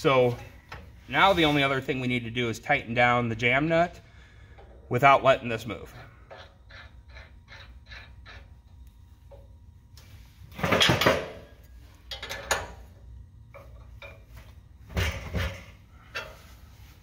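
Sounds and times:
wrench clanking against metal: 12.0 - 12.9.

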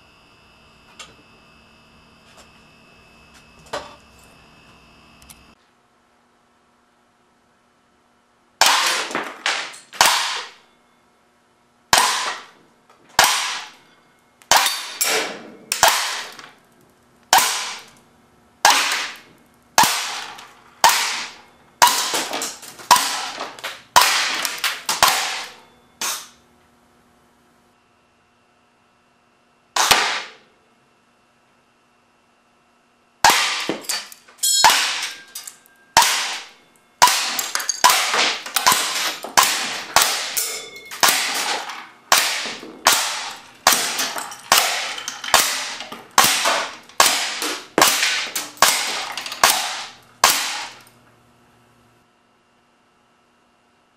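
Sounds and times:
air cannon firing sharp cracks: 8.6 - 10.6, 11.9 - 12.5, 13.2 - 13.8, 14.5 - 16.4, 17.3 - 17.9, 18.6 - 26.3, 29.8 - 30.4, 33.2 - 33.8, 34.6 - 35.1, 36.0 - 40.4, 41.0 - 50.8.

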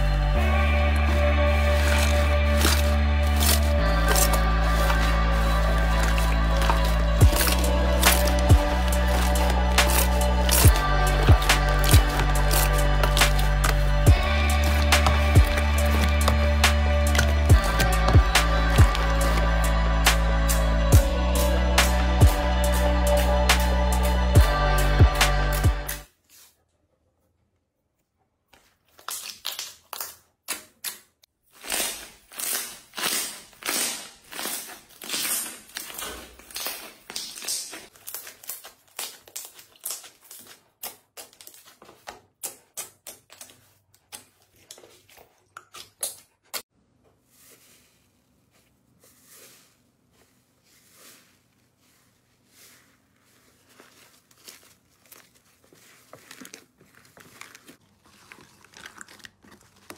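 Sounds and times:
slime squelching and popping: 5.8 - 19.5, 53.6 - 59.9.

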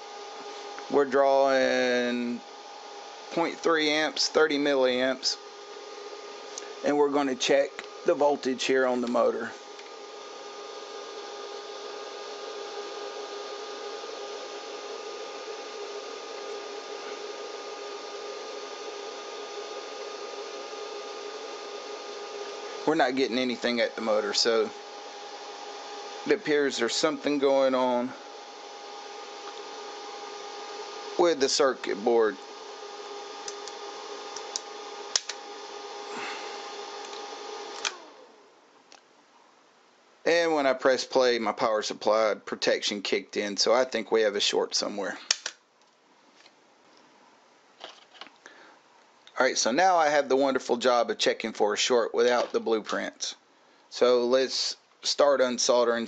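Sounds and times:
power supply humming: 0.0 - 42.4.

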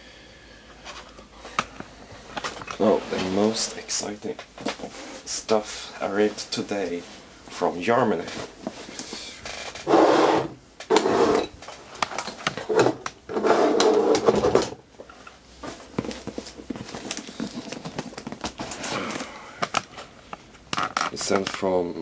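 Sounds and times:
objects rubbing and scraping on desk: 9.6 - 11.5, 12.7 - 14.5.

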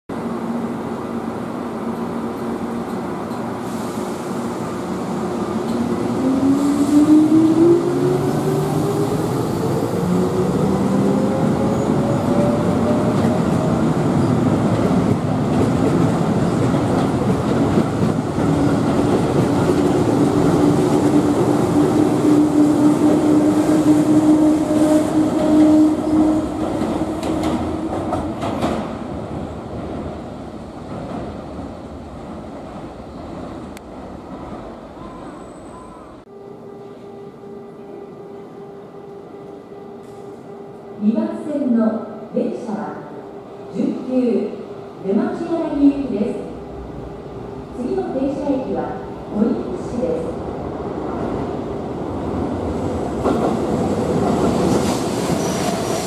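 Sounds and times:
wheels rumbling on rail: 1.8 - 36.3, 50.4 - 56.0.

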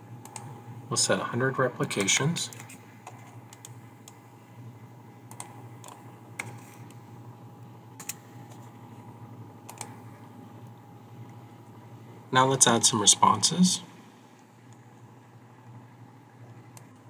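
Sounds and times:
steady low hum: 0.0 - 17.0
keyboard keystrokes: 9.7 - 9.9
mouse clicks: 9.7 - 10.0.

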